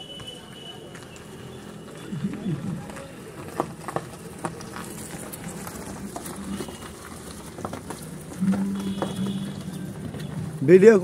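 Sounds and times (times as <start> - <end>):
footsteps crunching on gravel: 2.5 - 10.6.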